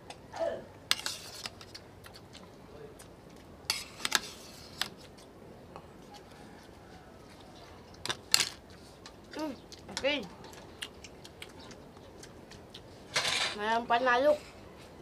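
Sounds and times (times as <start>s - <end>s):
cutlery clinking on plates: 13.1s - 13.6s.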